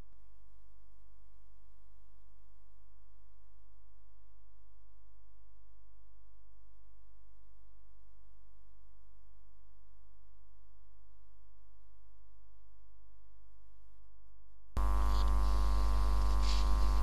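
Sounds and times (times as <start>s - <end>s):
faint steady tones: 14.8s - 17.0s
low electrical hum: 14.8s - 17.0s.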